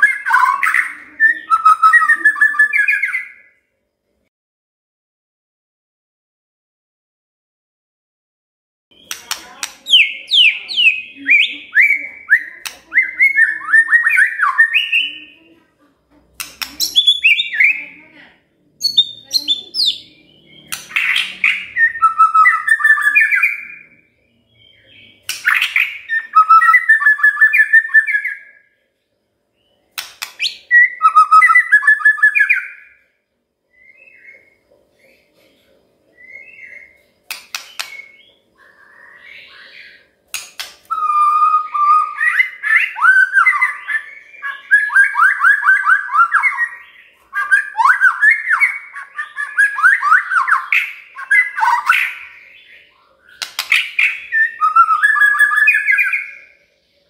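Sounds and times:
bird singing whistled phrases: 0.0s - 3.6s, 8.9s - 15.4s, 16.6s - 18.0s, 18.8s - 28.7s, 30.3s - 33.0s, 40.9s - 56.5s.

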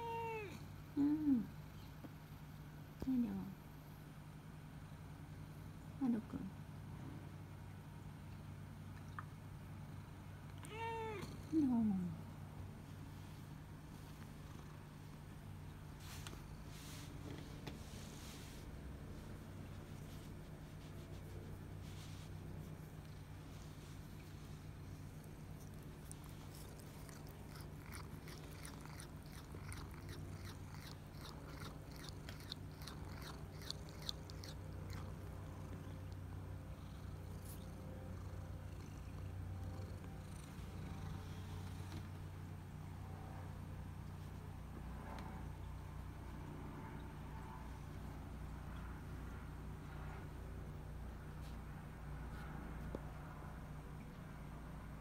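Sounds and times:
cat meowing: 0.0s - 0.6s, 10.6s - 11.4s
kitten chewing wet mouth clicks: 25.6s - 35.3s.

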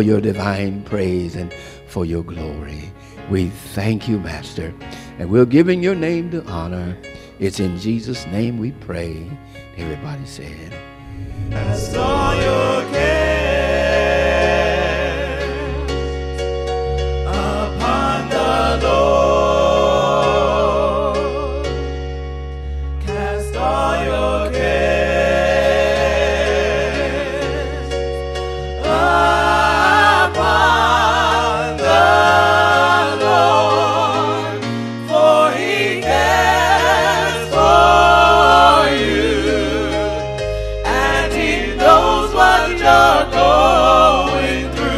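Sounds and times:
low bass notes: 11.0s - 13.4s.

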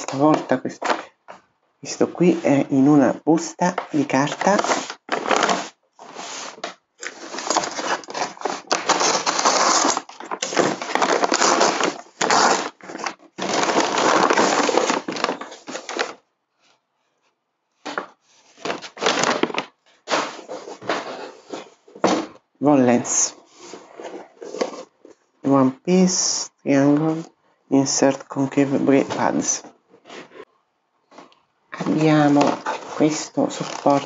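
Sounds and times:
paper envelope crinkling: 3.7s - 16.2s, 31.8s - 34.0s.

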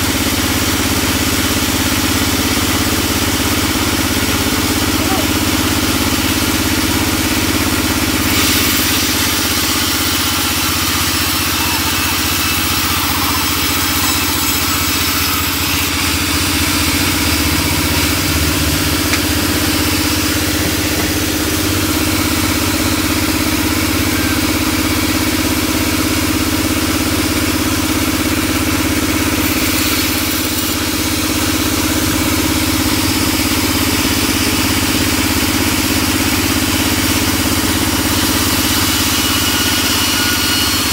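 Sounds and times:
band saw machine drone: 0.0s - 40.9s
saw blade hissing through wood: 7.7s - 24.9s.

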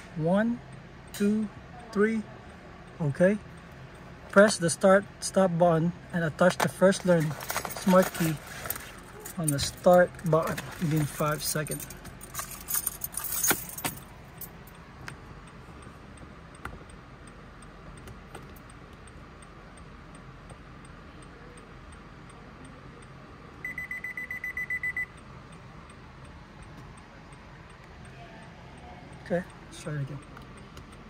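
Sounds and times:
keys rattling and clicking: 6.5s - 14.8s.

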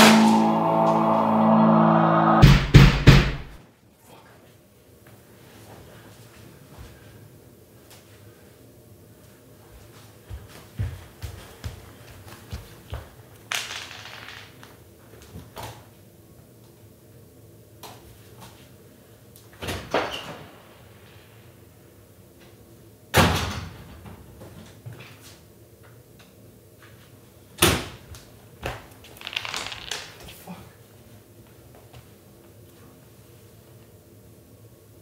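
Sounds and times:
loud ringing bangs: 0.0s - 3.6s
knocks and thuds: 2.4s - 3.6s.

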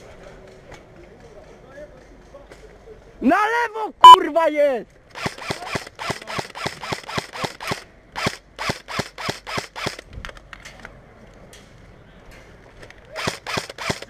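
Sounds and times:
airsoft rifle shots: 13.1s - 14.0s.

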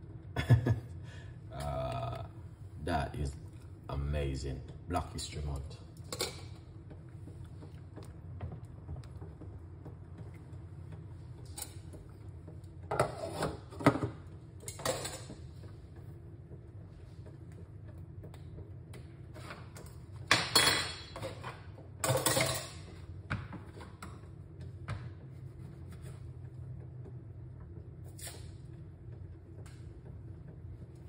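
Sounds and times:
steady low hum: 0.0s - 31.0s
pots and dishes clattering: 6.0s - 6.6s, 12.9s - 15.6s, 19.4s - 23.0s.

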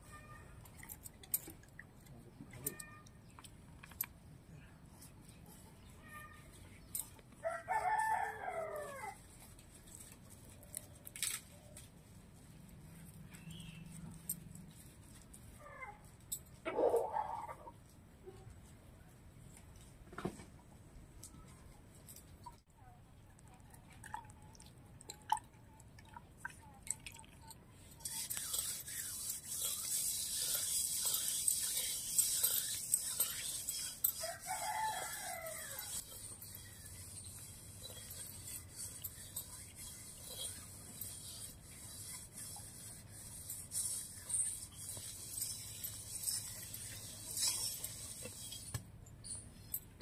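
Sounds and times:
rooster crowing: 7.4s - 9.2s, 34.2s - 36.0s.

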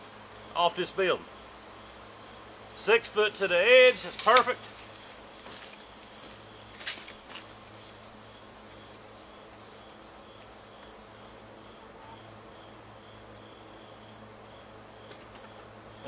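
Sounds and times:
faint insect chirp: 0.0s - 16.0s
insect trill: 0.0s - 16.0s
sharp clicks: 4.0s - 4.6s.

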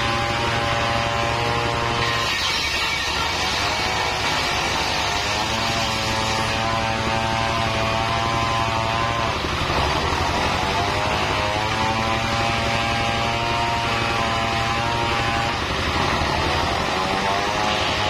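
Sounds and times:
circular saw cutting wood: 0.0s - 18.0s
diesel engine running: 6.8s - 13.8s, 14.8s - 18.0s.

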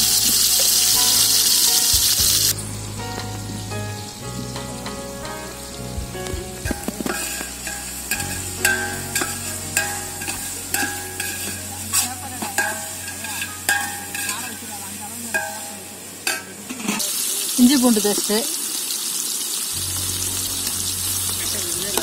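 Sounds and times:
food sizzling in hot oil: 0.0s - 22.0s
spoon scraping and knocking pot: 6.7s - 14.5s
pot ringing: 6.7s - 16.7s.

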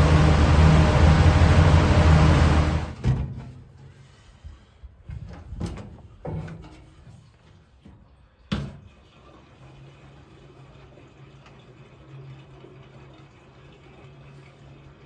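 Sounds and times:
vehicle engine running: 0.0s - 3.0s.

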